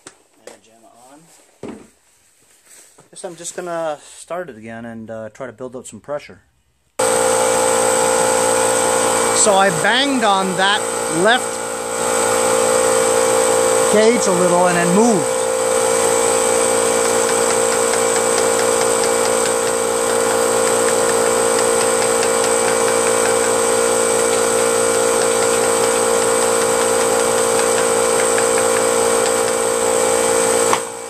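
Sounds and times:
air compressor running: 7.0 - 31.0
screwdriver tapping gauge: 15.8 - 29.8.

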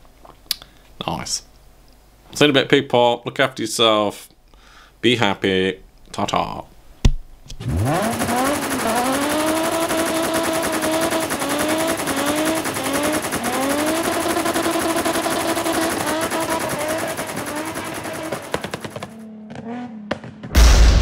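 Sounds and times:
exhaust pops crackling: 7.5 - 20.7
car engine revving: 7.6 - 20.8.

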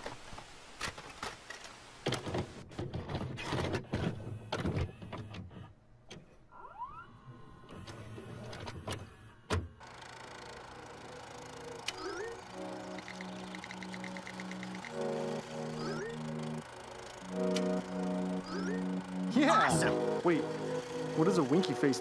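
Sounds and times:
tape hiss: 0.0 - 2.5, 9.8 - 22.0
motor whirring: 6.6 - 22.0
tape mechanism clicks and clunks: 7.7 - 22.0.

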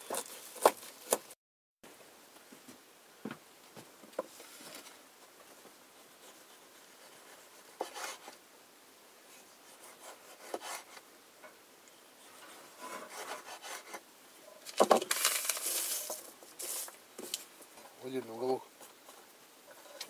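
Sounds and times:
knife scraping board: 7.8 - 8.4, 9.8 - 11.0, 12.2 - 14.0.

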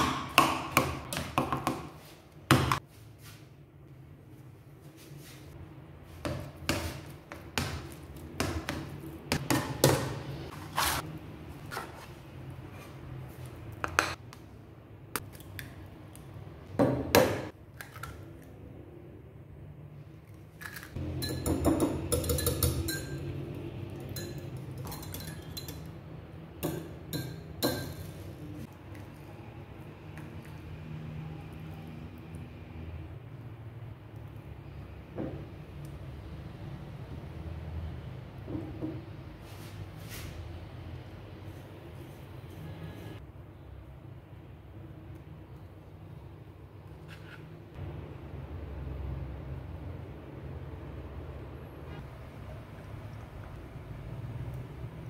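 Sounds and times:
whisk clinking in ceramic bowl: 21.1 - 23.3, 24.0 - 25.9.

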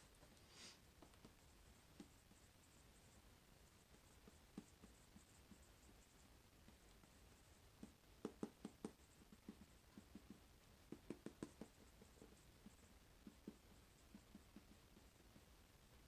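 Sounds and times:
marker writing on whiteboard: 1.0 - 15.5.

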